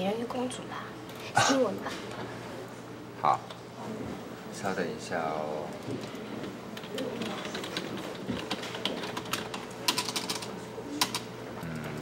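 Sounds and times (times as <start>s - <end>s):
keyboard typing: 6.8s - 12.0s.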